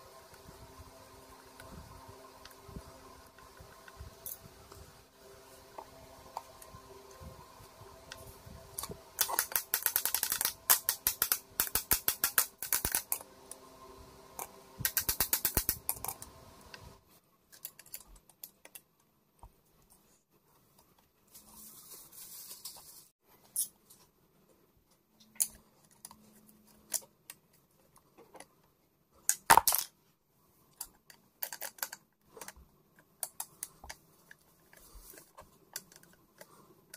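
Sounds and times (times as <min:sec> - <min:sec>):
steady hum: 0:00.0 - 0:17.1.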